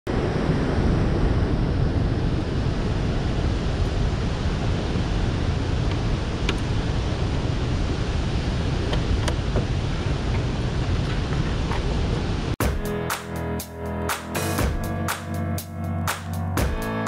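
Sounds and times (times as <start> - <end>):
wind buffeting microphone: 0.1 - 12.6.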